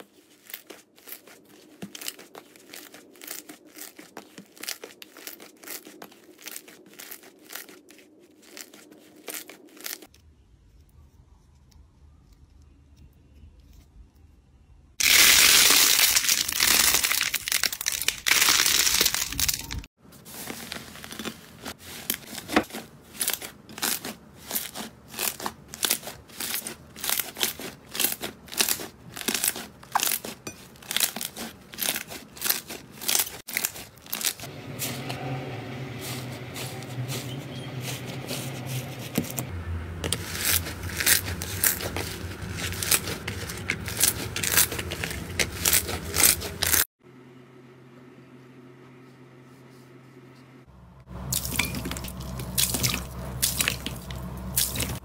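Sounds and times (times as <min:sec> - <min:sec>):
squishy toy crinkly rubbing: 0:00.0 - 0:10.1, 0:36.0 - 0:46.9
low steady hum: 0:34.0 - 0:55.0.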